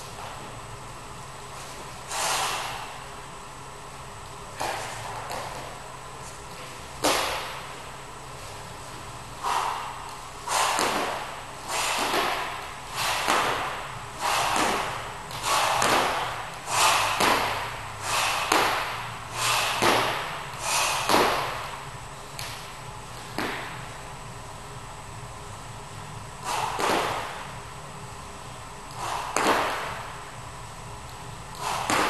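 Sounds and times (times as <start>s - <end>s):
hard exercise breathing: 1.5s - 3.2s, 8.3s - 24.0s, 26.2s - 27.7s, 28.5s - 30.3s, 31.2s - 32.0s.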